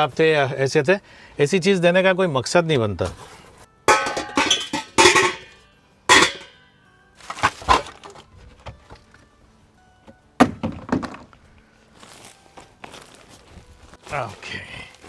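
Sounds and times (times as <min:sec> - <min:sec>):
metal pots clanking: 0:03.9 - 0:06.6
bags rustling: 0:07.2 - 0:08.3, 0:11.9 - 0:15.0.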